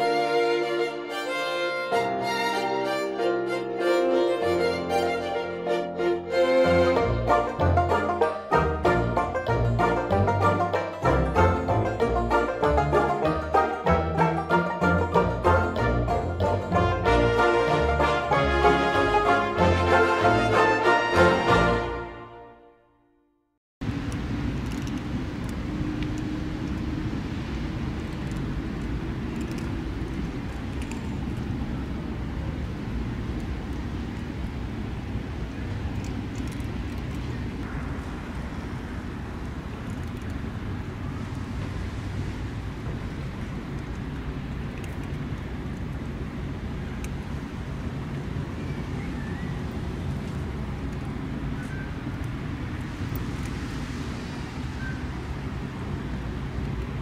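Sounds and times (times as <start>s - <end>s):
low outdoor rumble: 3.3s - 22.2s, 23.8s - 57.0s.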